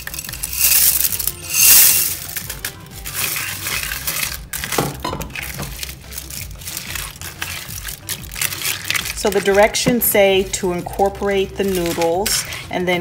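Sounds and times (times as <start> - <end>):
dry noodles pouring and rattling: 0.0 - 9.8.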